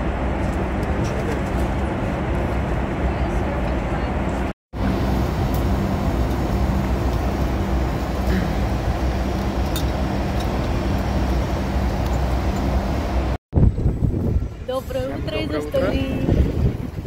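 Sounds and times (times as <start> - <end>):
jet cabin drone: 0.0 - 13.4.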